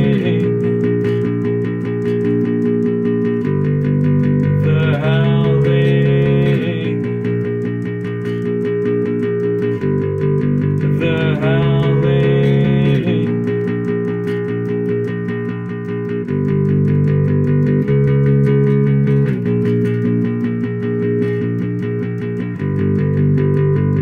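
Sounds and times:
lead guitar bending notes: 0:00.0 - 0:24.0
rock guitar and bass chords: 0:00.0 - 0:24.0.

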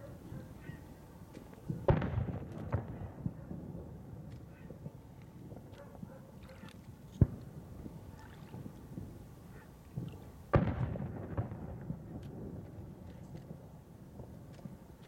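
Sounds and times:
firework bang rumbling: 0:01.7 - 0:04.0, 0:10.0 - 0:12.6.

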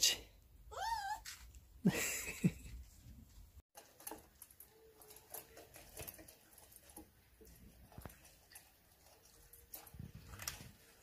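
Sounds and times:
puppies eating from metal bowls: 0:03.7 - 0:11.0.

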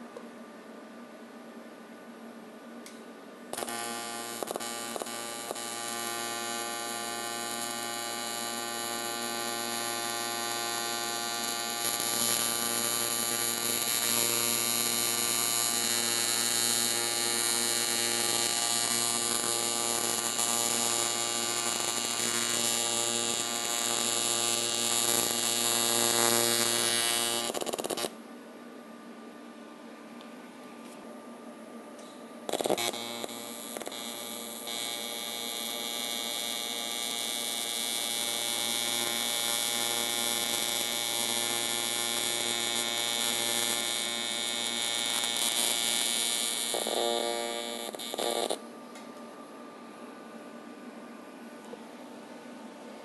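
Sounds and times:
welding arc crackles: 0:03.5 - 0:28.1, 0:32.5 - 0:48.6
welding arc buzzing: 0:03.5 - 0:28.2, 0:32.5 - 0:48.6.

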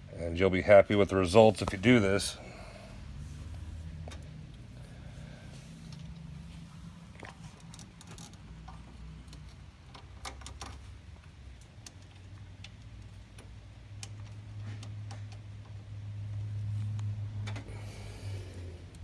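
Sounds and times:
low steady hum: 0:00.0 - 0:19.0
light metallic clicks and taps: 0:07.6 - 0:17.7.

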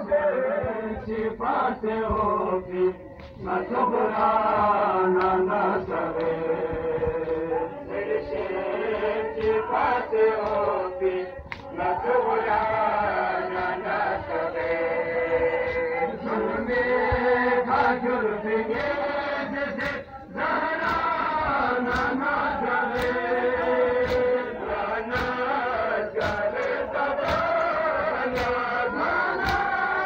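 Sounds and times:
men chanting in unison: 0:00.0 - 0:30.0
chest-beating slaps: 0:19.8 - 0:20.1, 0:20.8 - 0:22.2, 0:22.9 - 0:29.9.

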